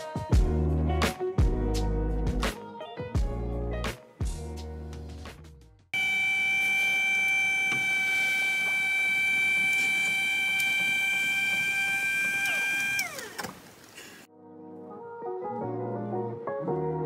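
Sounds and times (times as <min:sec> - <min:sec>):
recliner seat motor whining: 0:06.0 - 0:14.2.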